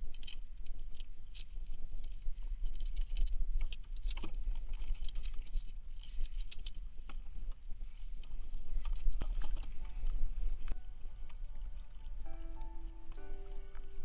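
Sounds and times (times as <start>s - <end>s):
steady low rumble: 5.8s - 14.0s.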